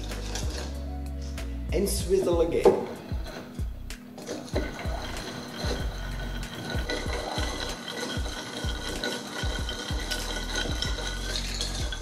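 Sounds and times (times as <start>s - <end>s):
ice rattling against glass: 0.0s - 0.8s, 4.2s - 12.0s.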